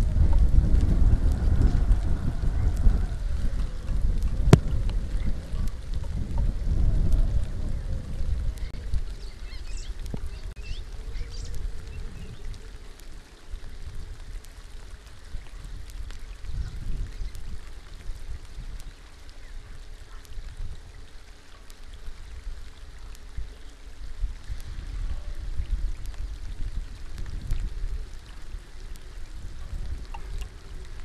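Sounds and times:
low rumble: 0:00.0 - 0:18.6
rain falling on water: 0:00.0 - 0:31.0.

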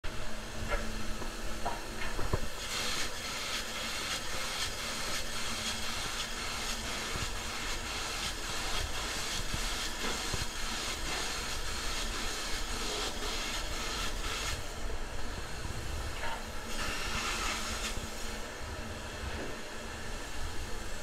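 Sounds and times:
spray foam gun hissing: 0:02.3 - 0:14.8, 0:16.6 - 0:18.5.

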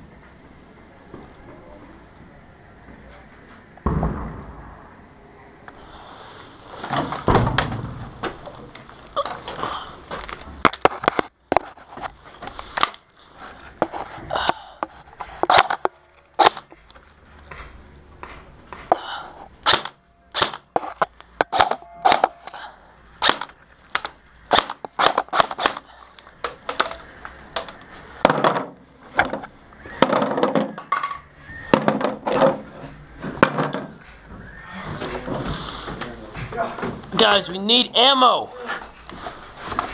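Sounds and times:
airsoft rifle shots: 0:16.4 - 0:16.7, 0:19.6 - 0:22.4, 0:23.2 - 0:25.9.

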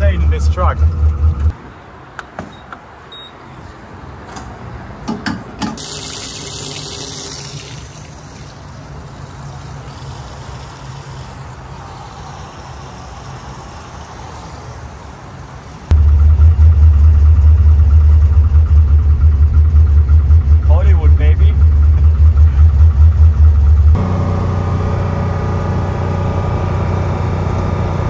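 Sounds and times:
vehicle engine: 0:00.0 - 0:01.7, 0:07.8 - 0:28.0
fuel flowing into tank: 0:05.8 - 0:16.0
low hum: 0:15.9 - 0:28.0.

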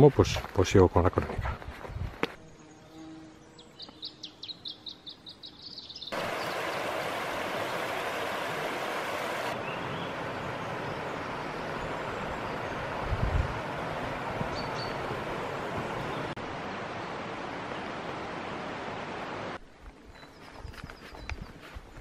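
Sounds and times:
small bird chirping: 0:02.5 - 0:06.8, 0:14.5 - 0:15.1
river rushing over stones: 0:06.1 - 0:19.6.

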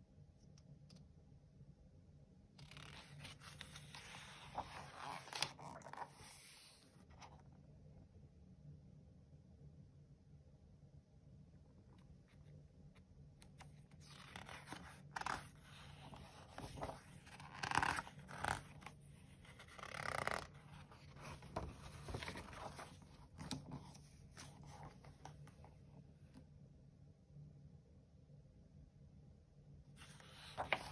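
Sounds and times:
paper pages rustling: 0:02.6 - 0:07.3, 0:13.4 - 0:25.8, 0:30.0 - 0:30.9.

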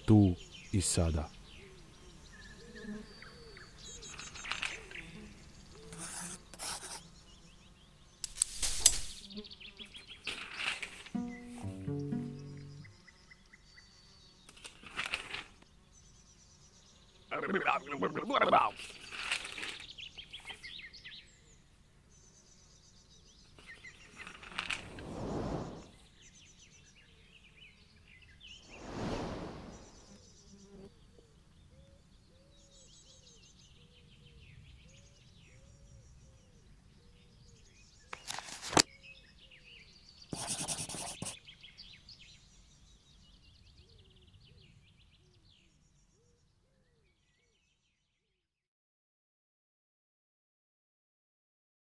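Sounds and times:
small birds chirping: 0:00.0 - 0:48.1
rushes of noise: 0:24.5 - 0:26.0, 0:28.6 - 0:30.1
short burst of noise: 0:28.7 - 0:30.1.

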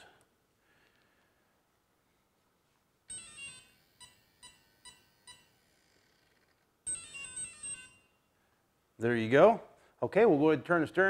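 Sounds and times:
motor start-up tones: 0:03.1 - 0:08.1.

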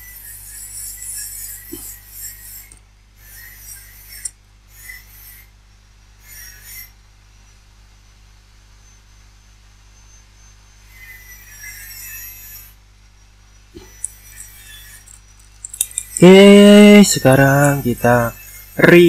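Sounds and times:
angle grinder screeching: 0:00.0 - 0:05.5, 0:10.8 - 0:12.8, 0:13.8 - 0:19.0
sharp click: 0:15.0 - 0:16.9.

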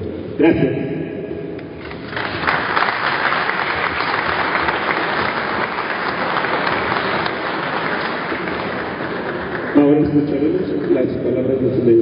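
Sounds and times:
people applauding: 0:01.8 - 0:11.2.

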